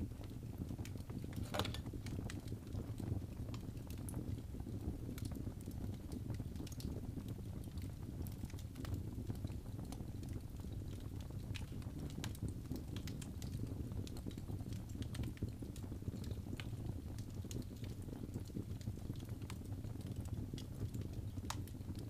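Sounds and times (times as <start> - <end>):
fire crackling and popping: 0.0 - 22.0
low rumble of flames: 0.0 - 22.0.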